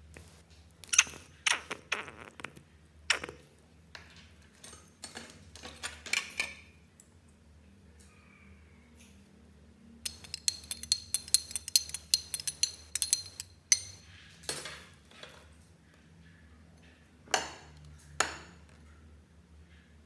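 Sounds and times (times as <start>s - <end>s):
metal spoon clinking in glass: 10.0s - 14.0s.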